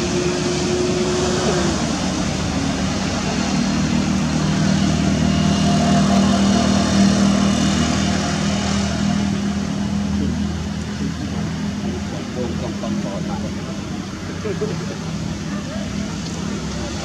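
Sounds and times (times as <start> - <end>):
engine drone: 0.0 - 17.0.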